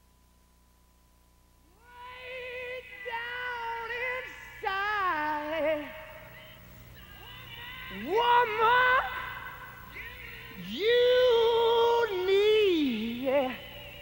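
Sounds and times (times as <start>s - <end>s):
faint steady tone: 0.0s - 14.0s.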